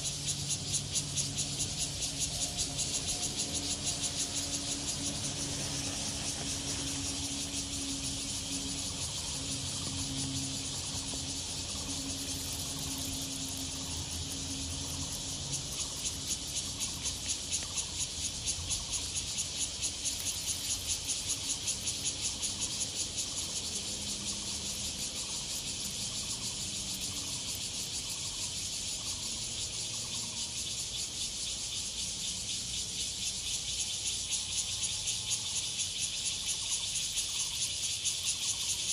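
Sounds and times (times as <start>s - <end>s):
insects chirring: 0.0s - 38.9s.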